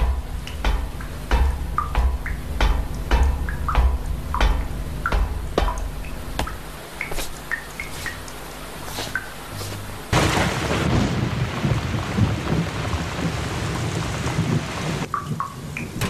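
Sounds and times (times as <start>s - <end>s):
low pulsing rumble: 0.0s - 6.8s
water dripping: 0.0s - 10.2s, 15.0s - 16.0s.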